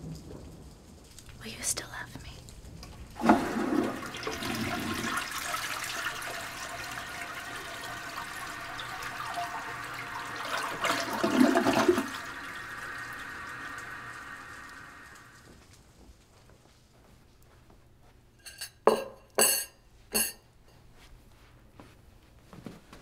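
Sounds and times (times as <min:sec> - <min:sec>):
rushing water: 0:03.1 - 0:15.5.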